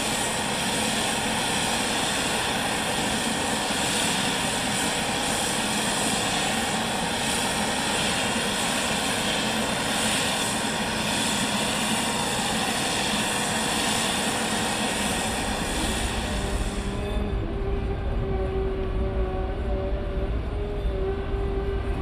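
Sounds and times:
tow tractor engine droning: 15.1s - 22.0s.

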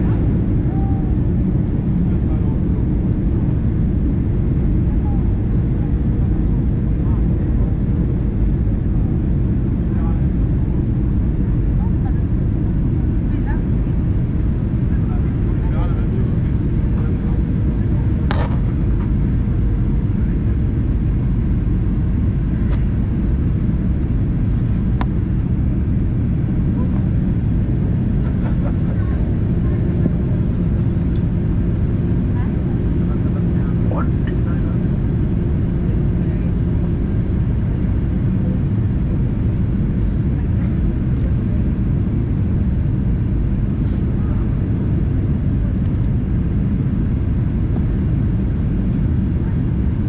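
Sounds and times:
airflow over fuselage: 0.0s - 50.0s
airplane engine rumble in cabin: 0.0s - 50.0s.

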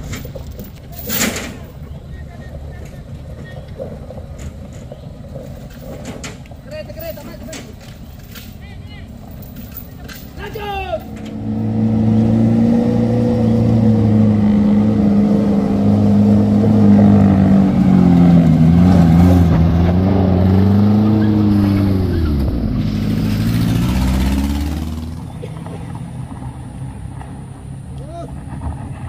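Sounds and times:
truck engine pulling uphill: 0.0s - 29.0s.

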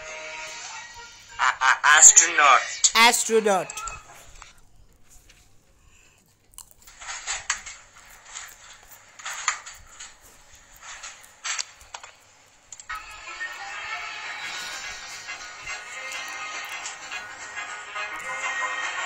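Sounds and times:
irregular clicks and rustles: 3.8s - 18.4s
music from laptop speakers: 12.9s - 19.0s.

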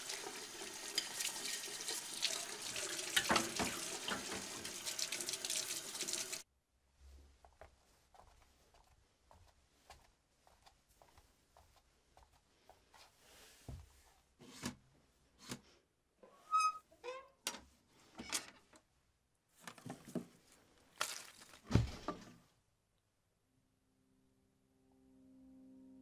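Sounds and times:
short squeak: 16.3s - 17.3s
rustling of household objects: 19.5s - 22.5s
knocks and thuds of objects: 21.6s - 22.2s.

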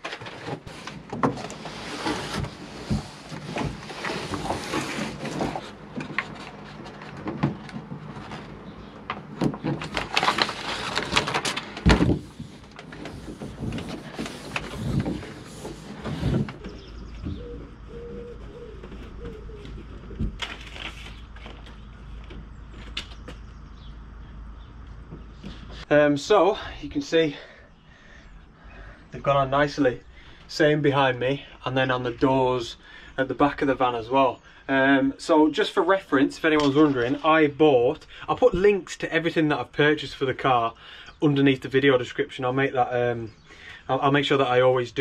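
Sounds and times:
rustling and scraping on metal panels: 0.0s - 23.4s
low steady hum: 0.7s - 45.0s.

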